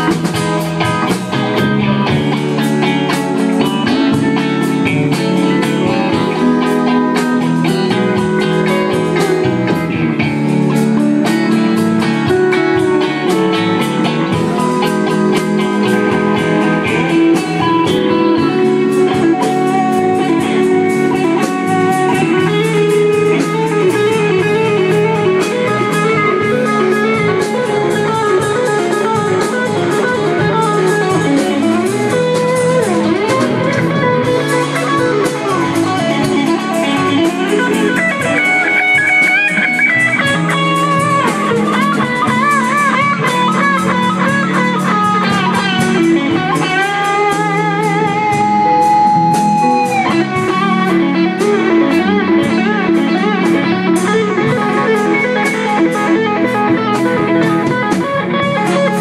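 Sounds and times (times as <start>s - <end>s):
blues band playing: 0.0s - 59.0s
electric guitar: 0.0s - 59.0s.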